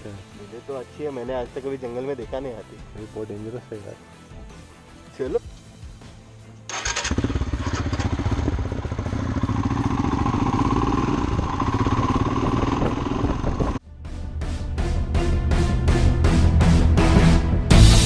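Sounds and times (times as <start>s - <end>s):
motorcycle engine running: 6.7s - 13.8s.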